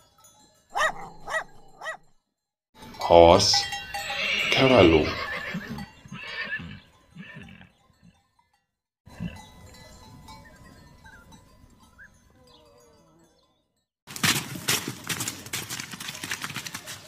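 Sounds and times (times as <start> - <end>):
horse whinnying: 4.0 - 7.7.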